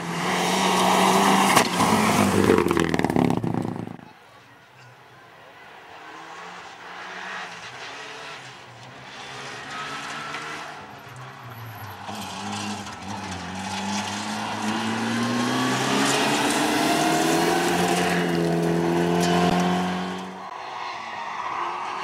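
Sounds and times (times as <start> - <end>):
rally car engine accelerating: 5.9 - 20.5
tyres rushing on gravel: 7.6 - 19.8.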